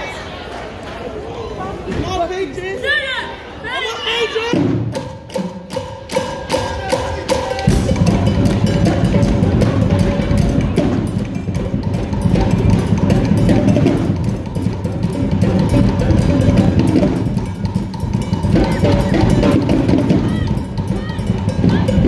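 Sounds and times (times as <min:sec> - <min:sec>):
driving drum beat: 0:04.5 - 0:22.0.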